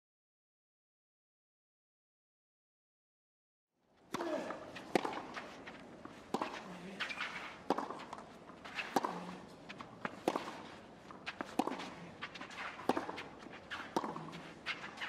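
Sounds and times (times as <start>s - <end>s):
ball bouncing: 4.1s - 5.5s, 6.3s - 15.0s
racquet hitting tennis ball: 4.1s - 15.0s
shoes scuffing on clay: 4.2s - 15.0s.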